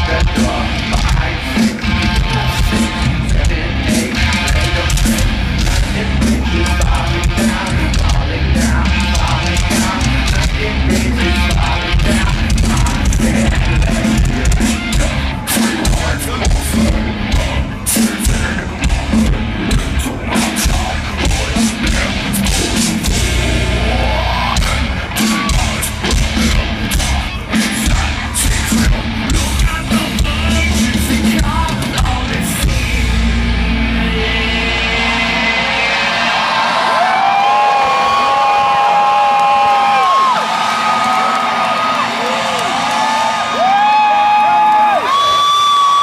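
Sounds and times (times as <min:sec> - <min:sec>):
person singing: 0:00.0 - 0:38.2
live metal band playing: 0:00.0 - 0:45.2.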